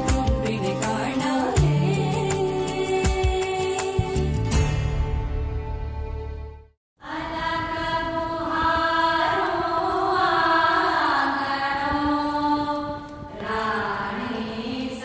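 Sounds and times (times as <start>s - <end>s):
recorded song: 0.0s - 10.3s
chant-like singing: 7.0s - 15.0s.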